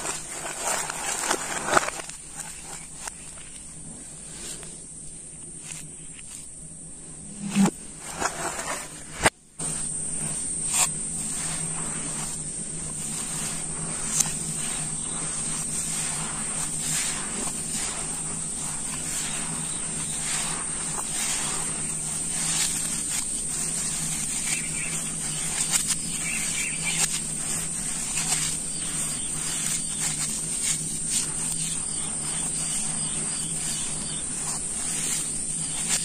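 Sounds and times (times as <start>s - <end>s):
small crunches and crackles: 0.0s - 4.8s, 12.9s - 36.0s
hands sifting dry sand powder: 0.0s - 36.0s.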